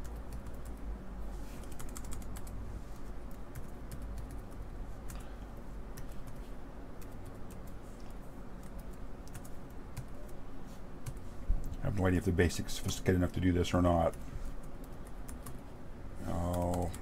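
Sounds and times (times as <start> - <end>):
laptop keyboard typing: 0.0 - 0.9, 1.6 - 5.2, 5.9 - 7.8, 8.6 - 10.4, 14.1 - 15.6, 16.3 - 17.0
steady low hum: 0.0 - 17.0.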